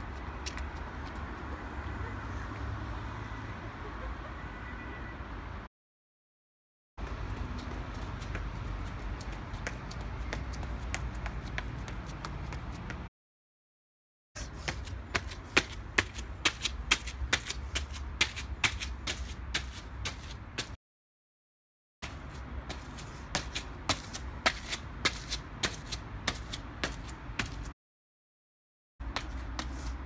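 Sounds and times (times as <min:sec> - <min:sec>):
footsteps on stone stairs: 0:22.6 - 0:27.7.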